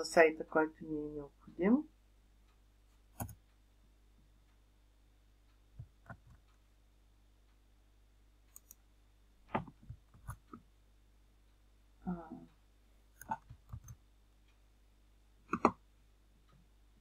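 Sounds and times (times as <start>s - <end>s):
mouse and keyboard clicks: 3.2s - 3.4s, 8.5s - 8.8s, 13.2s - 14.0s.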